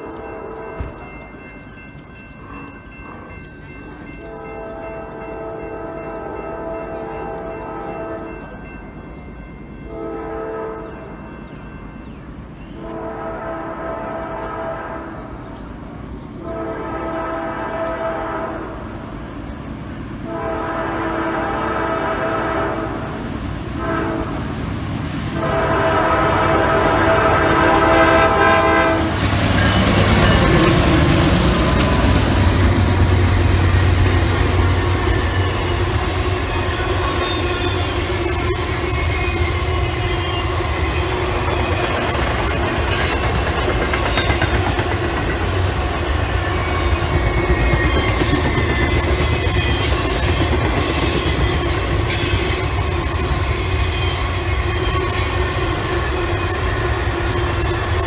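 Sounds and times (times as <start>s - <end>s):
low diesel locomotive rumble: 0.0s - 58.0s
train air horn blasts: 4.2s - 8.5s, 9.9s - 11.2s, 12.7s - 15.4s, 16.4s - 18.8s, 20.2s - 24.7s, 25.3s - 42.5s, 48.1s - 58.0s
railcars clattering over rail joints: 25.5s - 58.0s
high wheel squeal: 29.4s - 32.6s, 35.0s - 44.5s, 45.8s - 58.0s.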